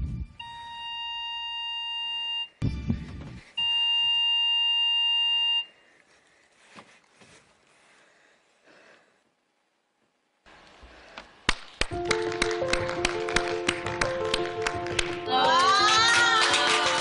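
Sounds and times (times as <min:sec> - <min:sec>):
long electronic beep tone: 0:00.3 - 0:02.6, 0:03.6 - 0:05.7.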